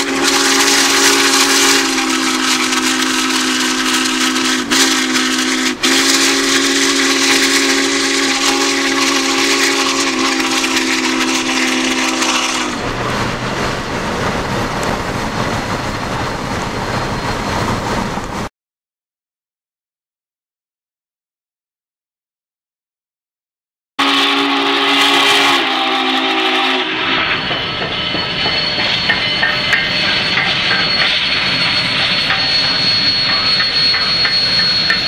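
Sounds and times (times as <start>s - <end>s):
steam whistle chord: 0.0s - 12.8s, 24.0s - 35.0s
steady rushing noise: 12.7s - 18.5s.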